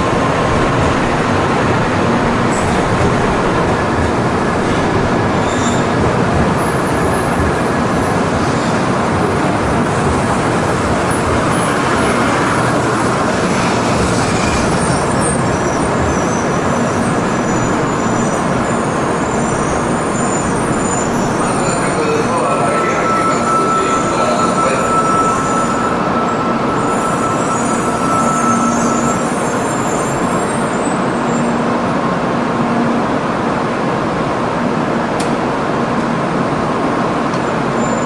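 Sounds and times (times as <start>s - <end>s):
train wheels rushing past: 0.0s - 31.2s
faint high whines: 20.1s - 30.4s.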